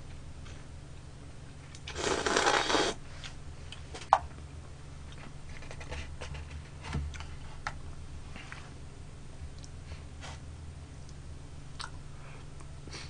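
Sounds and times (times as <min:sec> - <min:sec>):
person slurping soup: 0:01.9 - 0:03.0.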